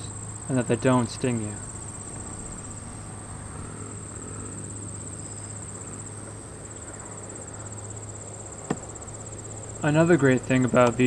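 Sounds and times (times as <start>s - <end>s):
crickets trilling: 0.0s - 11.0s
low steady hum: 0.0s - 11.0s.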